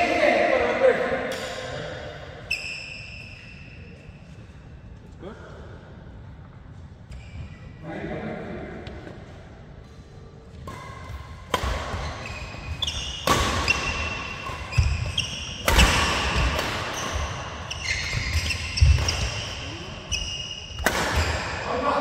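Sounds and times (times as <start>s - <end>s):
rackets hitting shuttlecock: 10.5s - 19.6s, 20.7s - 21.7s
sports shoes squeaking: 11.7s - 21.6s.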